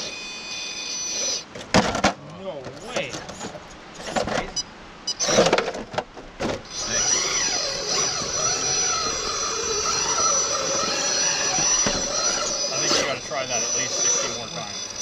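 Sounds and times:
electric motor and gears whining: 0.0 - 1.5, 5.1 - 5.6, 6.6 - 15.0.

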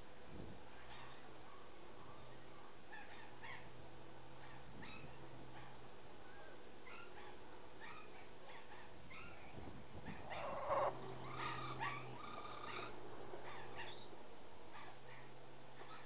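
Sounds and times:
parrot squeaky calls: 10.1 - 14.1.

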